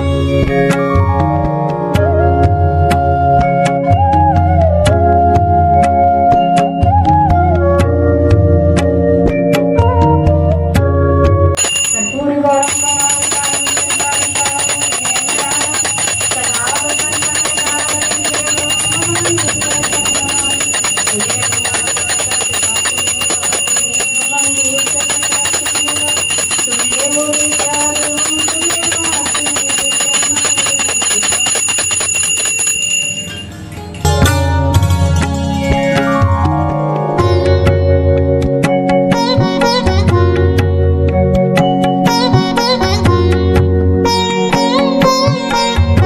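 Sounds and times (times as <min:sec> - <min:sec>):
hand bell ringing rapidly: 0:11.6 - 0:33.6
person singing devotional melody: 0:11.9 - 0:32.0.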